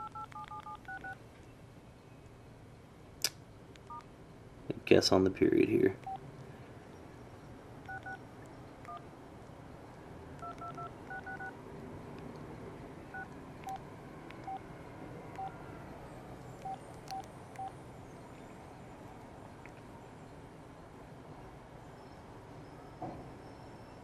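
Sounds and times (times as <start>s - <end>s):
phone keypad beeps: 0.0s - 1.2s, 6.0s - 6.2s, 7.8s - 8.2s, 8.8s - 9.0s, 10.4s - 11.5s, 13.1s - 14.6s, 15.3s - 15.6s, 16.6s - 17.8s.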